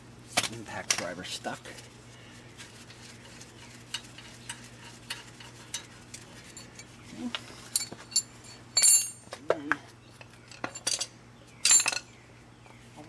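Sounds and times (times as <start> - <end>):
ringing metal clink: 7.7 - 9.2, 10.8 - 12.0.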